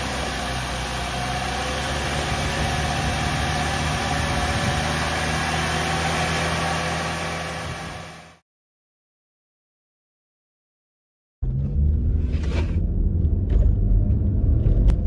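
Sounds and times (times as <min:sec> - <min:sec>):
car engine running at raised speed: 0:00.0 - 0:08.4.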